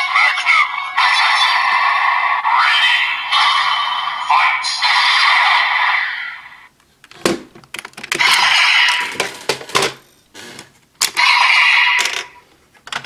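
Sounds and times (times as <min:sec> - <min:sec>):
electronic toy sound effects: 0:00.0 - 0:06.7, 0:08.2 - 0:09.4, 0:11.0 - 0:12.4.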